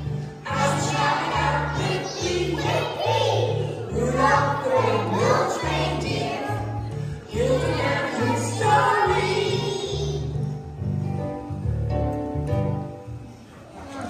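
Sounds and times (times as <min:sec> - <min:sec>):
backing music with bass line: 0:00.0 - 0:13.2
children singing: 0:00.4 - 0:10.4.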